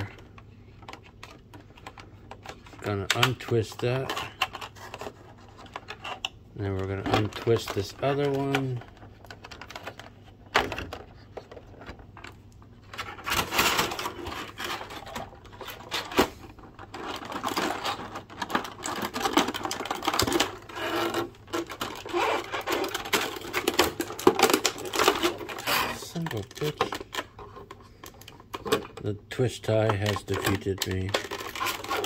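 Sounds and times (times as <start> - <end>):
plastic packaging crinkling: 6.8 - 32.0.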